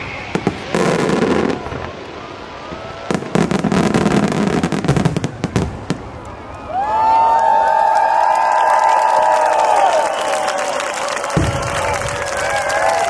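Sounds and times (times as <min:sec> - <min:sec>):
fireworks bursting and crackling: 0:00.0 - 0:06.7, 0:11.0 - 0:13.0.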